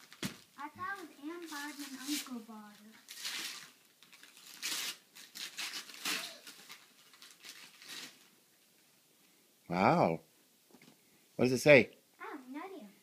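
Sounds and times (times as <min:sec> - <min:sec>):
wrapping paper tearing and crinkling: 0:00.0 - 0:08.3.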